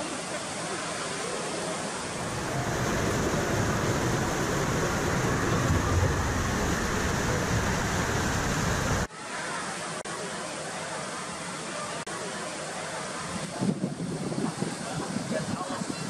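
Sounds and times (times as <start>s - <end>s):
steady background noise: 0.0s - 16.0s
water rushing through slide: 0.0s - 16.0s.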